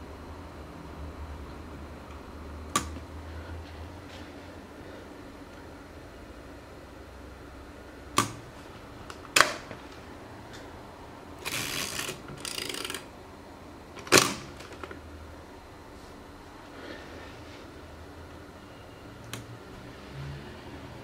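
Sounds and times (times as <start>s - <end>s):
film advance lever ratcheting: 11.4s - 13.0s.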